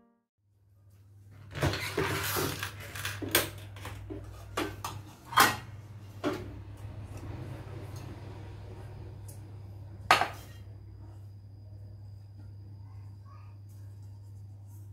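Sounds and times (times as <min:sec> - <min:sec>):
metal pans clanking: 0:04.0 - 0:06.5, 0:10.1 - 0:10.7.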